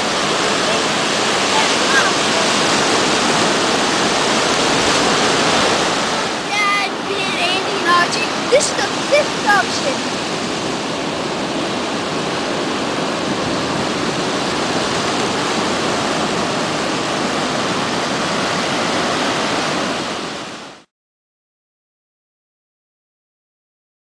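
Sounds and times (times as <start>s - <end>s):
surf breaking on beach: 0.0s - 20.9s.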